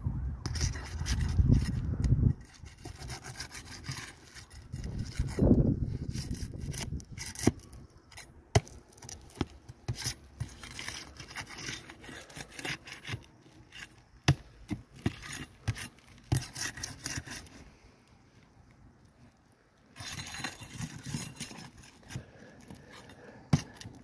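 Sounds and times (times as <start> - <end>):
pry bar scraping shingles: 0.4 - 17.7, 19.9 - 24.0.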